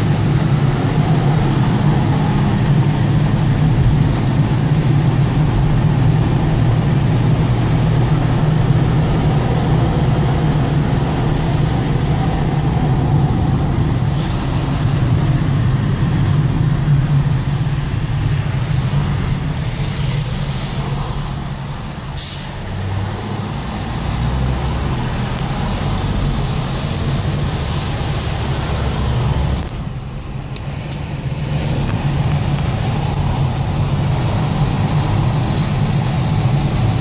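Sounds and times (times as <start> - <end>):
bus passing alongside: 0.0 - 37.0
car engine and road noise: 0.0 - 37.0
brief hiss: 22.1 - 22.6.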